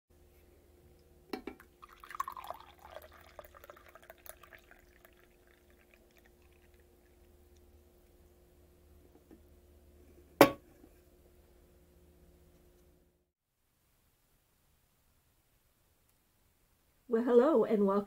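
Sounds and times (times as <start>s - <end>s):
mug clinking: 1.3s - 6.8s
coffee pouring into a mug: 1.4s - 8.2s.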